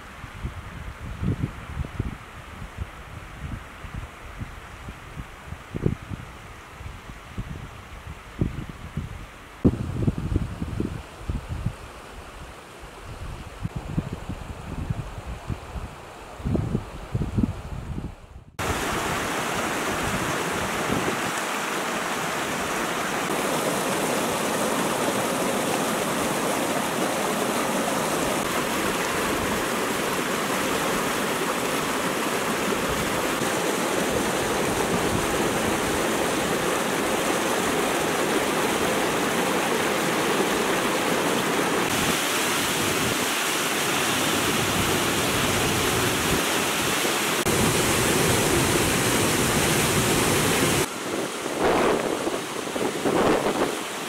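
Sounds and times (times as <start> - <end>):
stream rushing over rocks: 18.6 - 54.0.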